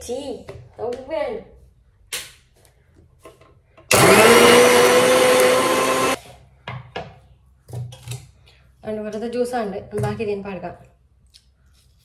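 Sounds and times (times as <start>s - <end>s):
kitchen mixer grinder motor: 3.9s - 6.2s.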